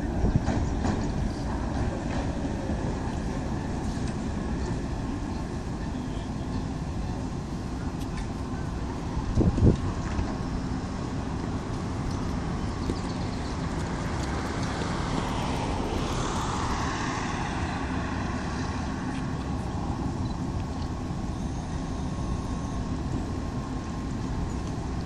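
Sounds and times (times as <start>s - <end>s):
rush of noise: 0.0s - 25.0s
tram rumbling on track: 0.0s - 25.0s.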